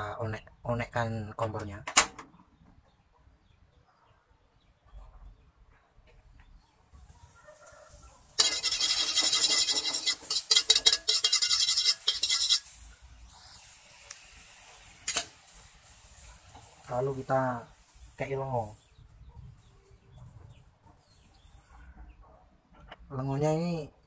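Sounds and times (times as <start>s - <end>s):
rasping scrape inside a wok: 8.4s - 16.9s.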